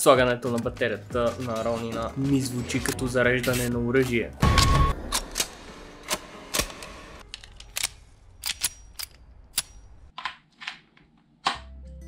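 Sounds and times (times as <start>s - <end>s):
handgun mechanism clicks: 6.1s - 9.9s.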